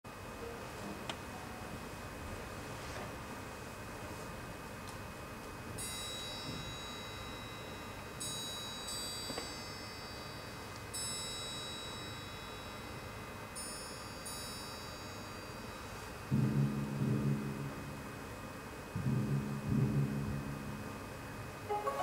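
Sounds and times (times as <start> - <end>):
high metallic chimes: 5.8 - 16.0
low string notes: 21.7 - 22.0.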